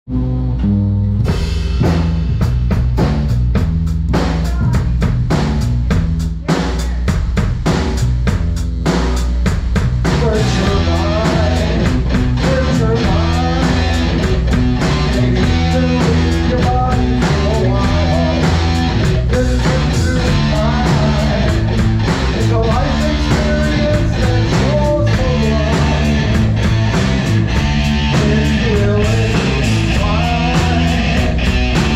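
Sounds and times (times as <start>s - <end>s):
live rock band playing: 0.1s - 31.9s
hard drum hits: 1.3s - 31.9s.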